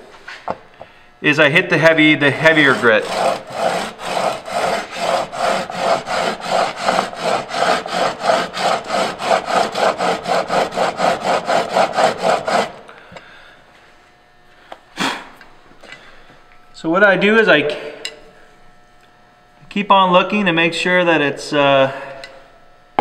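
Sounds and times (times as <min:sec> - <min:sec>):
chisel scraping on abrasive sheet: 0:01.8 - 0:12.8.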